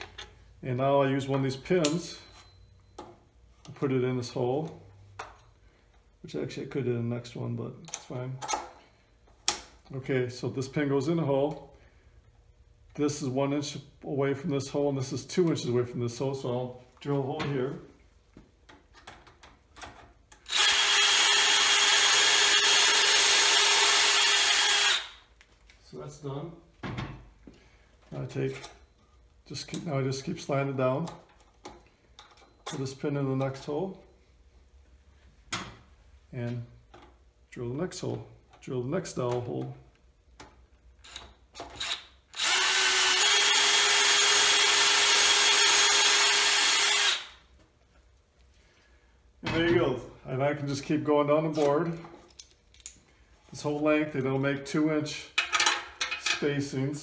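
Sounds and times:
cordless drill boring into wood: 20.5s - 25.2s, 41.1s - 47.4s.

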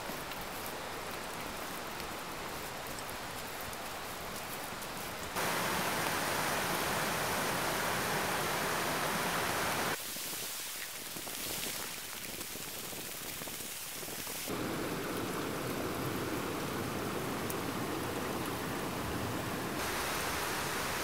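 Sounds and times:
river rapids rushing: 5.4s - 10.0s, 14.5s - 21.0s.

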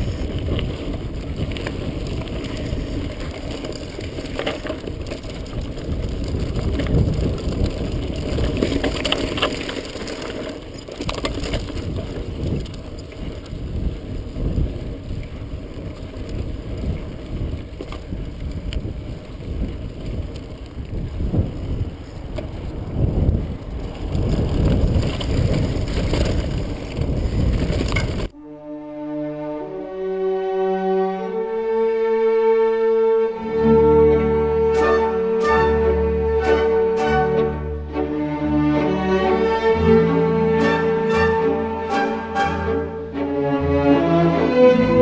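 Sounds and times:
bike knocks and rattles: 0.0s - 28.3s
tyres rumbling on dirt: 0.0s - 28.3s
wind on microphone: 0.0s - 28.4s.

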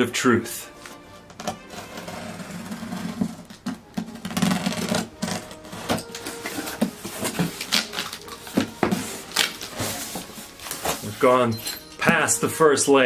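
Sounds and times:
box cutter scraping through tape: 1.6s - 11.1s.

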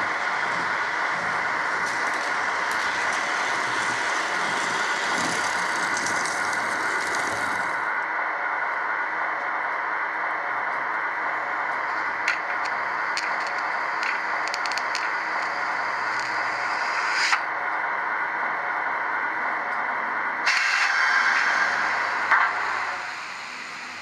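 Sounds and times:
model train hissing running sound: 0.0s - 7.9s, 13.2s - 17.4s, 20.4s - 24.0s.

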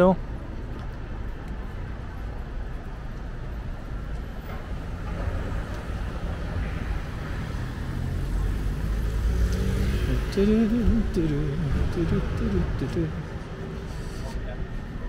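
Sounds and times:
street traffic rumble: 0.0s - 15.0s
vehicle approaching: 4.0s - 15.0s.

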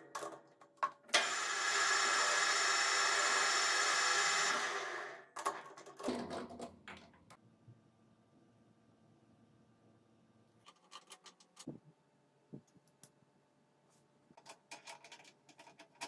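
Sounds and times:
lathe spindle whining: 1.1s - 5.3s.

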